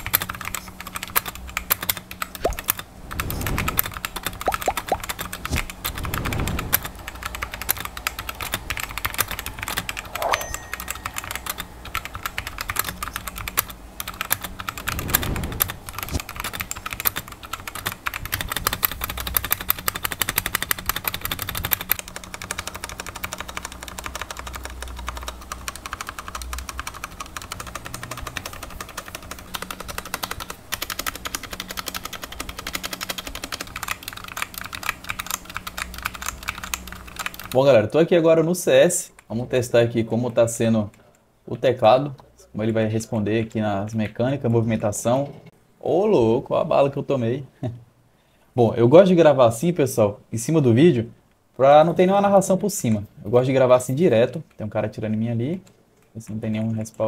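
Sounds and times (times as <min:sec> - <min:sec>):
mechanical keyboard typing: 0:00.0 - 0:37.7.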